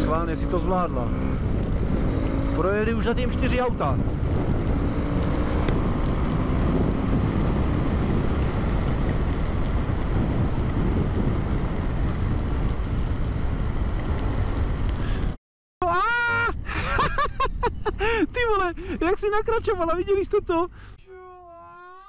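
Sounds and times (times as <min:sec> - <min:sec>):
wind buffeting microphone: 0:00.0 - 0:15.4.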